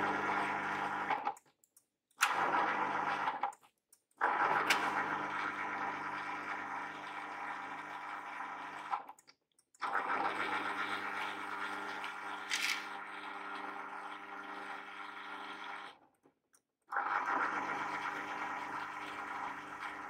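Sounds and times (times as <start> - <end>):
garage door opener motor humming: 0.0 - 1.3, 10.2 - 15.9.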